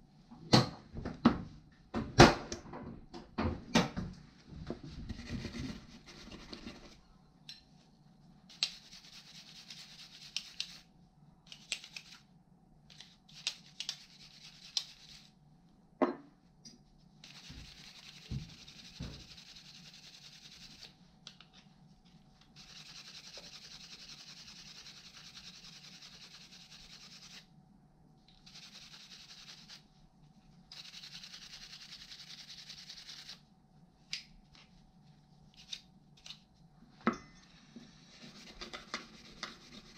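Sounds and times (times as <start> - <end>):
scrubbing metal by hand: 13.3 - 15.3, 38.1 - 39.9.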